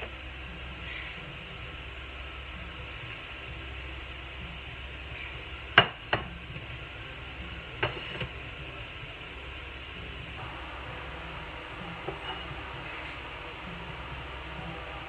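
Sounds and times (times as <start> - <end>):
steady background hiss: 10.4 - 15.0.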